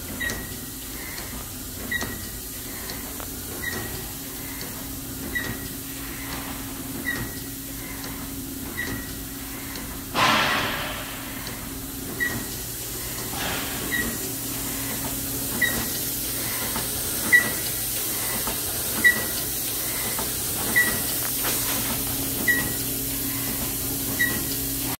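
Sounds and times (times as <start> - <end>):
factory machine hum with hiss: 0.0 - 25.0
sudden loud bang: 10.2 - 11.5.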